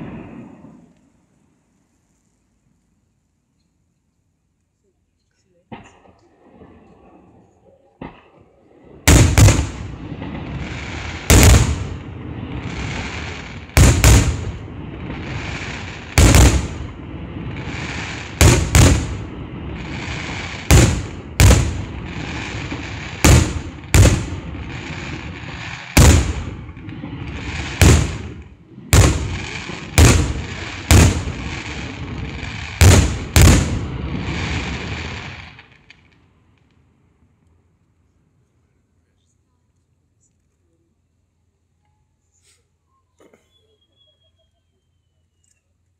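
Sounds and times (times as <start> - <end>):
fireworks bursting with sharp bangs: 0.0 - 1.2, 8.0 - 36.8
crackling hiss of burning stars: 0.0 - 43.0.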